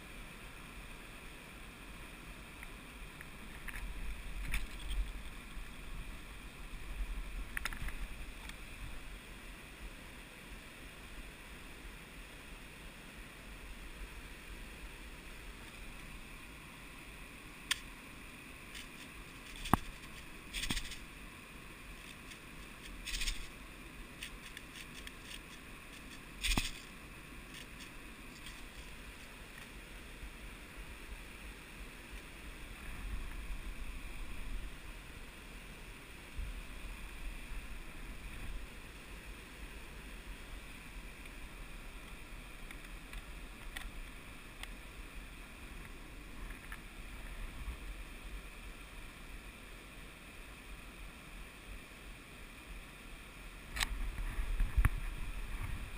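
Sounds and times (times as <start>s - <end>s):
low steady rumble: 0.0s - 55.9s
rustling and scraping on rock: 3.4s - 5.9s, 18.6s - 21.1s, 21.8s - 29.8s.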